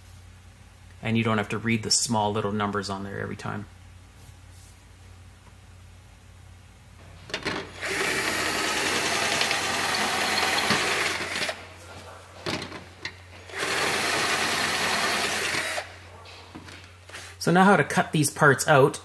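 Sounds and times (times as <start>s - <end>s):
drill clicks: 7.2s - 11.7s, 12.5s - 16.0s
cordless drill cutting sheet metal: 7.4s - 11.6s, 13.4s - 16.0s.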